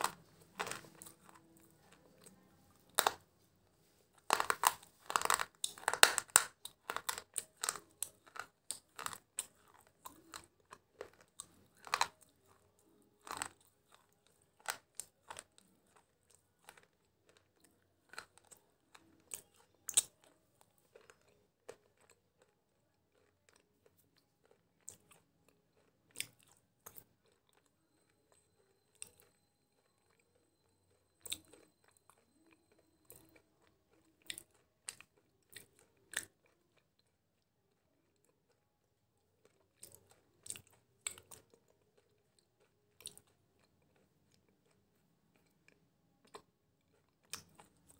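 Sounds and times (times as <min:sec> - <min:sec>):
person chewing crunchy food: 0:00.0 - 0:27.7, 0:28.6 - 0:38.6, 0:39.3 - 0:47.9.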